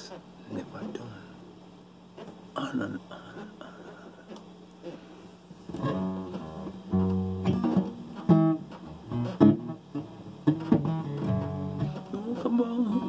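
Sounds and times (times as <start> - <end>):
acoustic guitar chords strummed: 5.8 - 13.0.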